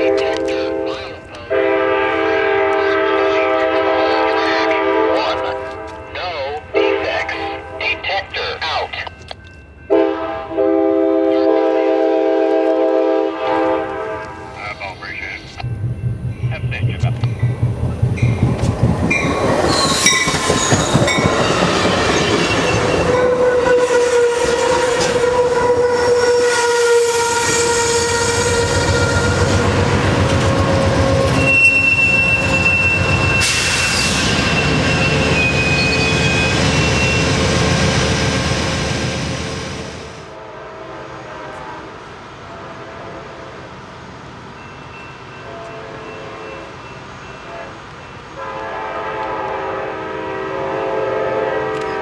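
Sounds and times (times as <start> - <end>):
passenger train passing: 0.0 - 52.0
high-pitched wheel squeal: 19.2 - 29.6, 31.2 - 37.4.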